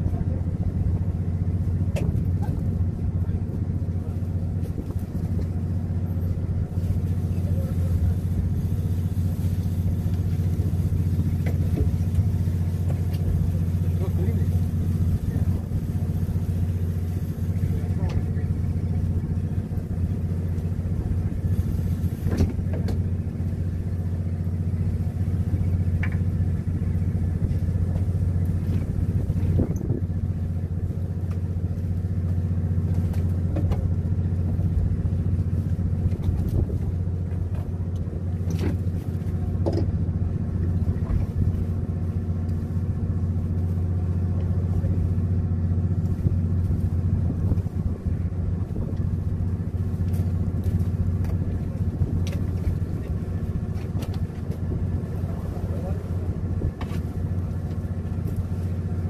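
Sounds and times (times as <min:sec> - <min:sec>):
boat diesel engine humming: 0:00.0 - 0:59.0.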